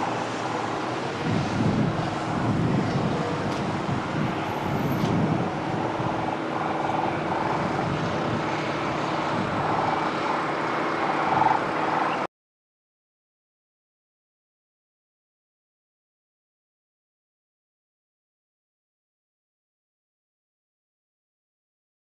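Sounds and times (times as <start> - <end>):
engine noise: 0.0 - 12.3.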